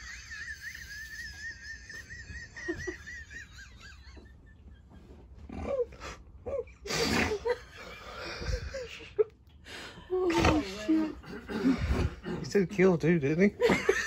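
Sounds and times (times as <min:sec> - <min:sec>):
women laughing: 0:00.0 - 0:05.2, 0:06.5 - 0:09.4, 0:13.6 - 0:14.0.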